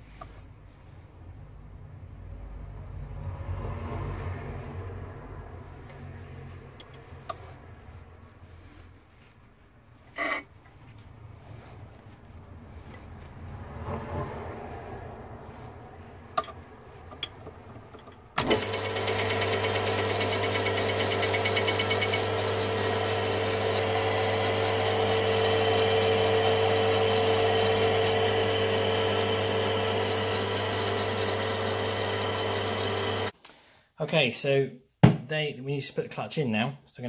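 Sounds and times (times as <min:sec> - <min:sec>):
metal lathe motor hum: 0:18.4 - 0:33.3.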